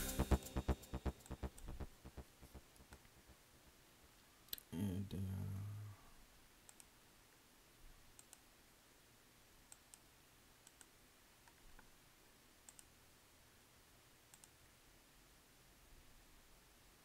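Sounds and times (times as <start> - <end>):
computer mouse clicks: 6.7 - 6.9, 8.2 - 8.5, 9.7 - 11.9, 12.7 - 12.9, 14.3 - 14.6.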